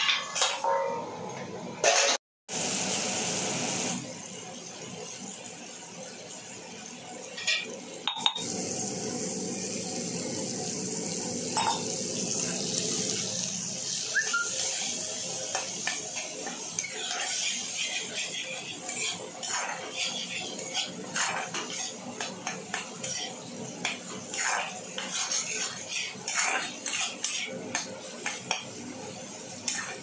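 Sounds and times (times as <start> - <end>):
vegetables sizzling in hot oil: 2.5 - 30.0
spatula scraping and knocking pan: 14.6 - 28.9, 29.5 - 30.0.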